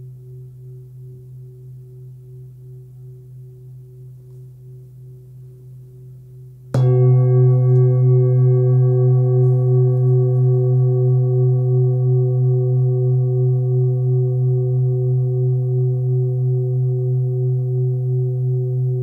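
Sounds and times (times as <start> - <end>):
singing bowl ringing: 6.7 - 19.0.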